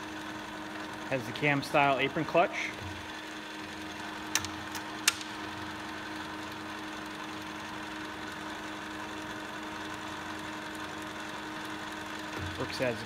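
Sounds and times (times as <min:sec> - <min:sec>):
lathe motor humming: 0:00.0 - 0:13.0
clutch click: 0:04.3 - 0:05.3.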